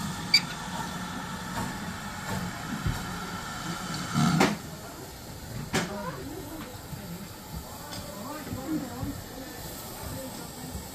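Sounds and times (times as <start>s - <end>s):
steam locomotive rumble: 0.0s - 5.6s.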